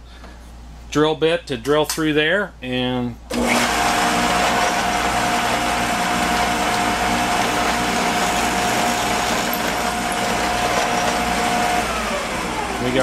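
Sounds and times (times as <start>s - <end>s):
drill press motor whine: 3.3s - 13.0s
drill bit boring through wood: 3.4s - 13.0s.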